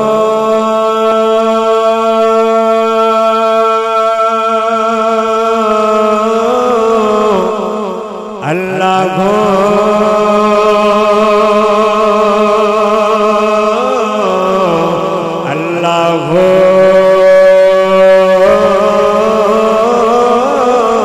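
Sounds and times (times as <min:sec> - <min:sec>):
man singing devotional chant: 0:00.0 - 0:21.0.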